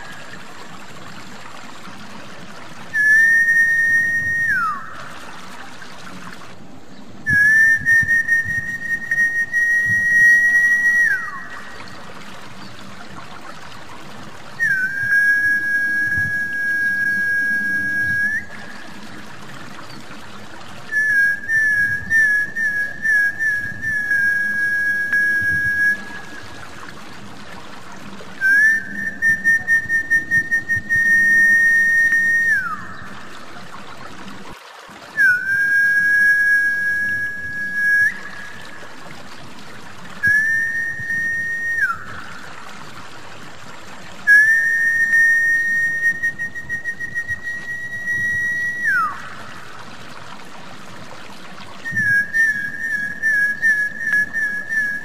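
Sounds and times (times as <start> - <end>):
water trickling: 0.0 - 55.0
long high whistled notes: 2.9 - 5.0, 7.3 - 11.9, 20.9 - 26.4, 28.4 - 33.3, 44.3 - 49.6.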